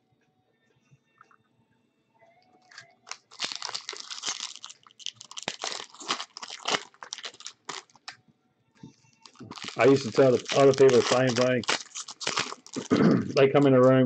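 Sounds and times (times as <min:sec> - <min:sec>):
foil wrapper tearing and crinkling: 0:02.7 - 0:08.2, 0:09.2 - 0:14.0.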